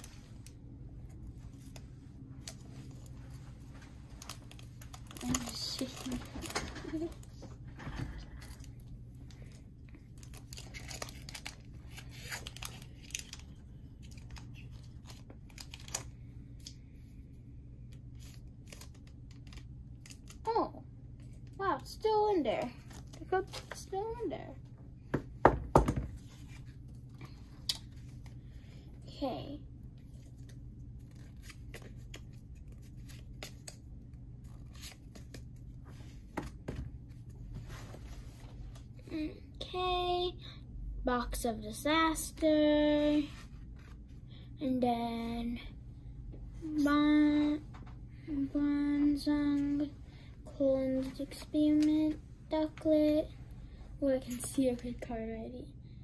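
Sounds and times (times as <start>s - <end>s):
foil wrapper tearing and crinkling: 4.2s - 7.2s, 10.2s - 13.4s, 14.0s - 16.1s.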